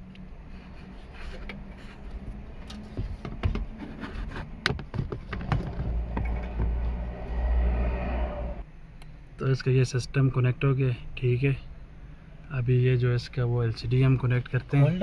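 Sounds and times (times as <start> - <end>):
low rumble: 5.5 - 8.7.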